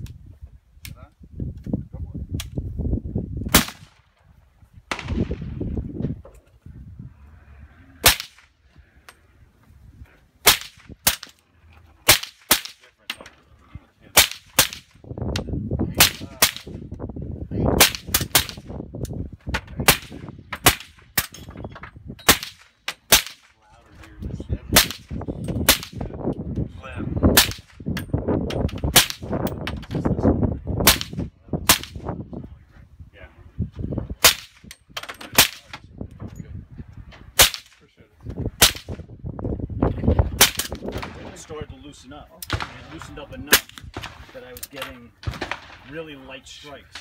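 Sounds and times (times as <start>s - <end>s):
suppressed rifle shots: 4.9s - 5.5s, 45.2s - 45.9s.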